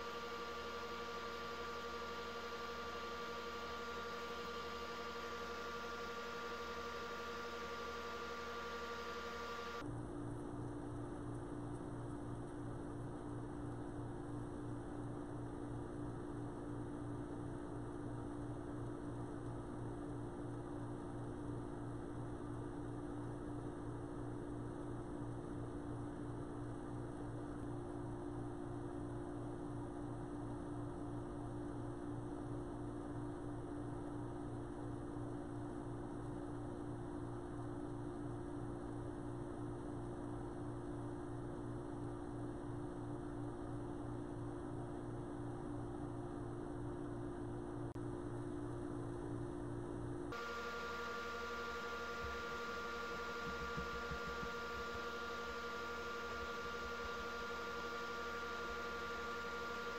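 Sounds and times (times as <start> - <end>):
wood lathe motor hum: 0.0 - 9.8, 50.4 - 59.9.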